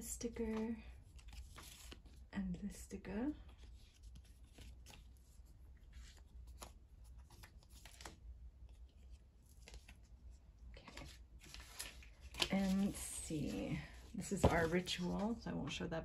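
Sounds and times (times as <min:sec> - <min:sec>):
paper stickers rustling and tapping: 0:10.8 - 0:15.3.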